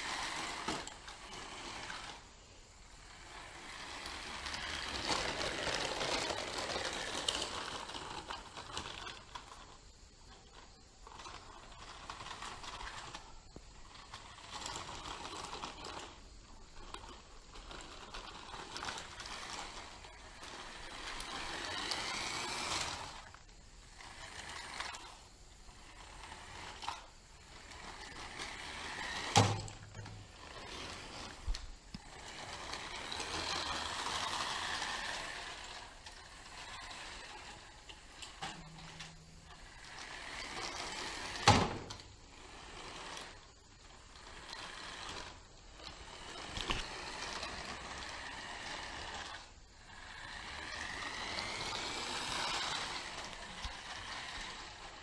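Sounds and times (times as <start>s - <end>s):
toy car motor whirring: 0.0s - 55.0s.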